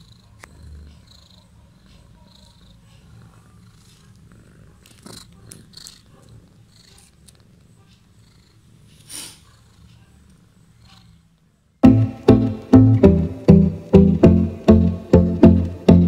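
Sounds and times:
cat purring: 0:00.0 - 0:11.8.

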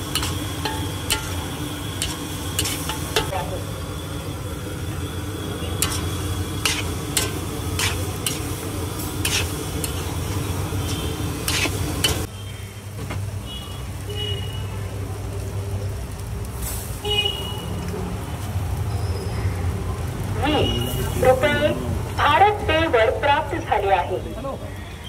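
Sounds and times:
metal spatula scraping a pan: 0:00.0 - 0:03.3, 0:05.8 - 0:08.6, 0:09.2 - 0:12.3.

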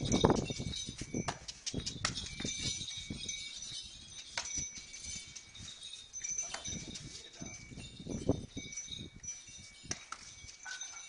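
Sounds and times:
hooves on brick paving: 0:00.0 - 0:08.7
high light ringing: 0:00.0 - 0:11.0.

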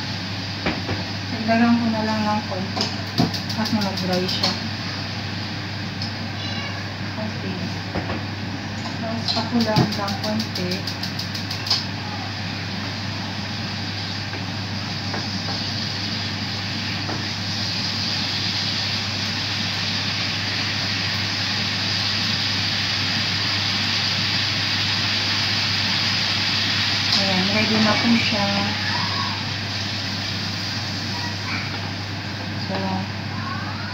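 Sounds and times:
sauce sizzling in frying pan: 0:00.0 - 0:33.6.

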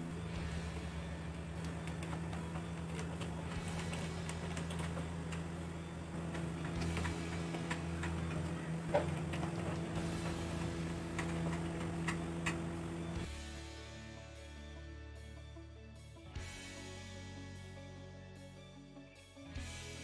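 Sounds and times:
steady low hum: 0:00.0 - 0:13.5.

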